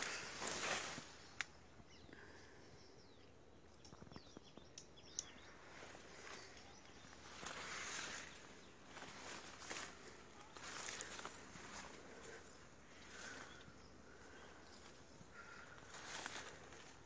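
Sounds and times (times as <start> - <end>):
plants rustling: 0.0 - 1.6, 5.5 - 17.0
faint bird chirps: 0.0 - 17.0.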